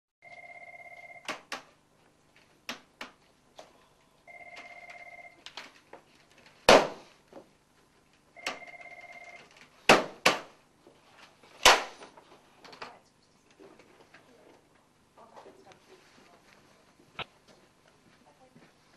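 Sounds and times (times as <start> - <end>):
electronic telephone ringing: 0.2 - 1.3, 4.3 - 5.4, 8.4 - 9.5.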